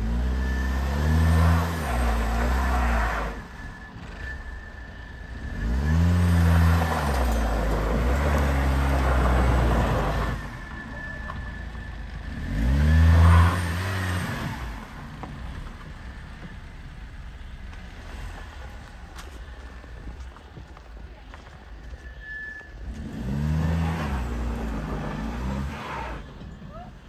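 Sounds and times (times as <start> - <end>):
car engine revving hard: 0.0 - 3.5, 5.4 - 10.5, 12.3 - 15.0, 22.9 - 26.3.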